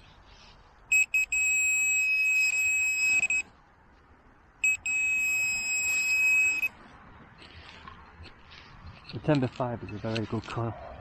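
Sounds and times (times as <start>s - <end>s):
pinpointer probe alarm tone: 0.9s - 3.5s, 4.6s - 6.7s.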